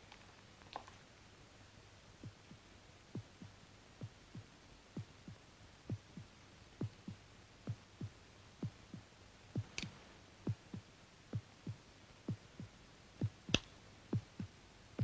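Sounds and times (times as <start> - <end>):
heartbeat double thumps: 3.2 - 9.8, 10.5 - 13.6, 14.2 - 14.6.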